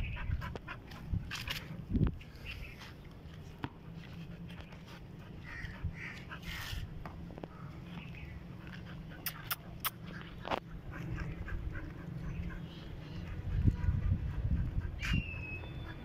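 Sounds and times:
dog panting: 0.0 - 1.8, 3.8 - 7.0, 8.3 - 16.0.

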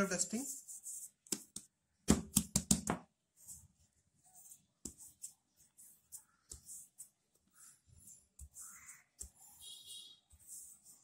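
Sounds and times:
rolling pin on dough: 0.4 - 11.0
hands slapping flour on worktop: 1.1 - 3.2.

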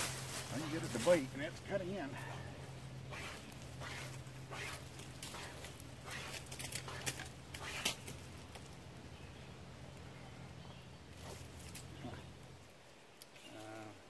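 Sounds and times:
wire saw rasping through wood: 3.1 - 8.0.

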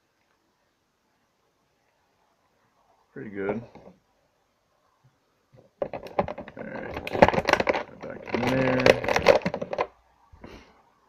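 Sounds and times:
plastic packaging clicks and crinkles: 5.6 - 10.0.

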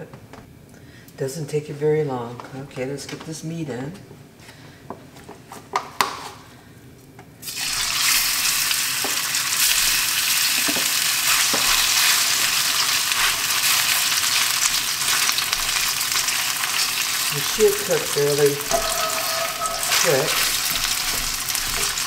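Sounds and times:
meat sizzling in hot oil: 7.4 - 22.0.

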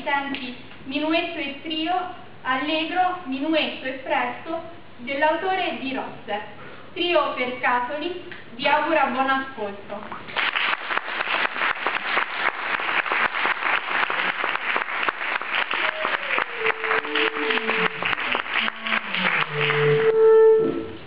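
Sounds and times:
audience applauding: 10.3 - 20.4
woodwinds playing: 15.6 - 21.0.

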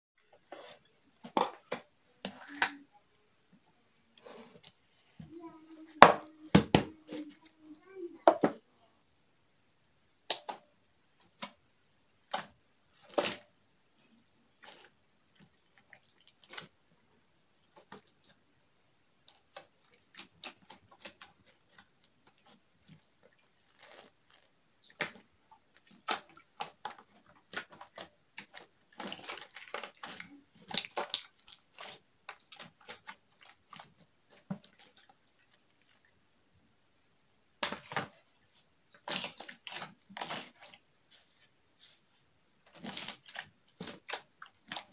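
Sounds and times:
slime squishing and popping: 25.8 - 35.4.

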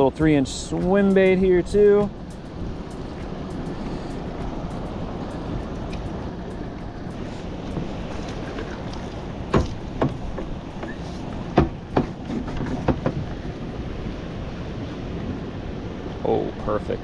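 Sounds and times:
outboard engine idling: 0.0 - 16.9
wind and water noise: 0.0 - 17.0
sharp knocks and clunks: 9.5 - 13.4.

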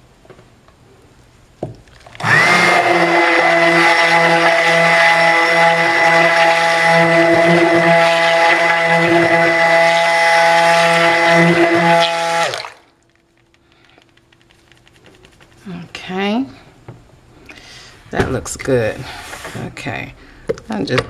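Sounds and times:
stick blender whirring: 2.0 - 14.3
faint handling sounds: 13.0 - 16.0.

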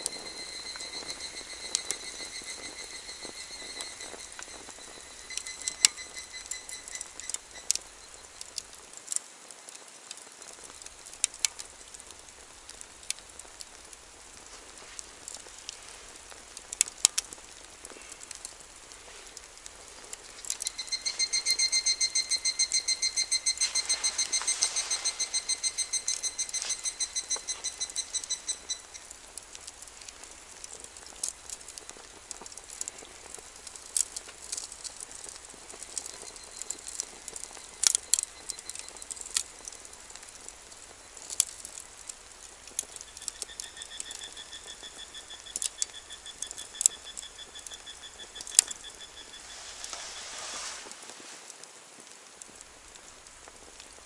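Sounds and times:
wood fire crackling and popping: 0.0 - 54.0
animal calling in high notes: 20.4 - 29.1.

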